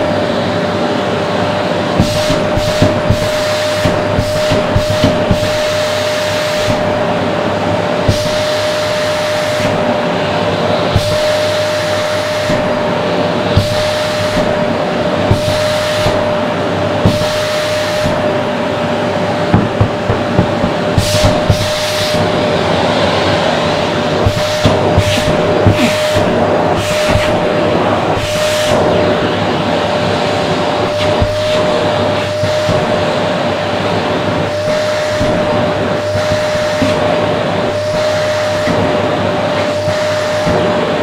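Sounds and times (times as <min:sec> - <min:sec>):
vacuum cleaner whining: 0:00.0 - 0:41.0
suction hiss: 0:02.0 - 0:07.0, 0:08.1 - 0:10.0, 0:10.9 - 0:18.4, 0:20.3 - 0:28.9.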